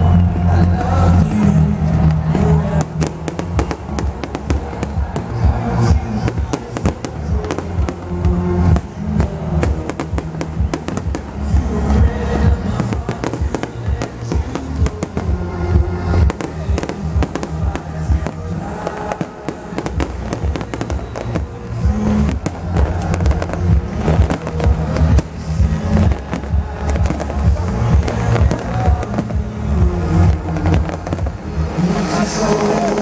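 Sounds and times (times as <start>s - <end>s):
electronic dance music: 0.0s - 33.0s
fireworks bangs and crackles: 0.1s - 33.0s.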